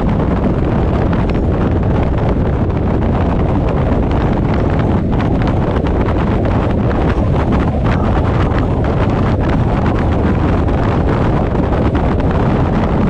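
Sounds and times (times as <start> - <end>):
car and tyres rumbling: 0.0 - 13.0
wind buffeting microphone: 0.0 - 13.0.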